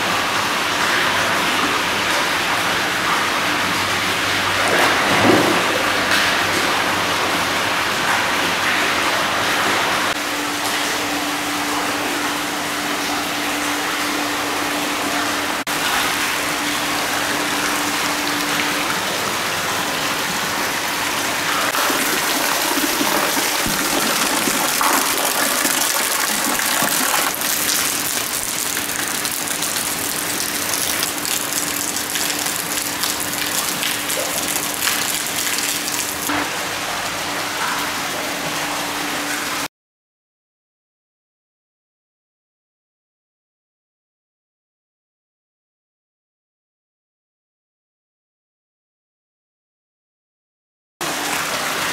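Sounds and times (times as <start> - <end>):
water pouring into stone bath: 21.7 - 36.3.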